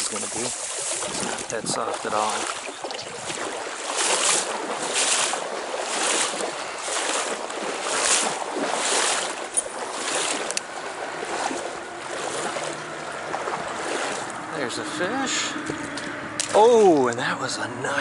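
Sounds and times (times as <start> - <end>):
stream water rushing and splashing: 0.0 - 18.0.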